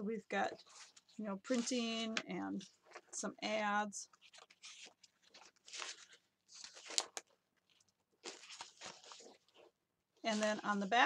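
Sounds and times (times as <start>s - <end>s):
foil paper rustling: 8.2s - 9.7s.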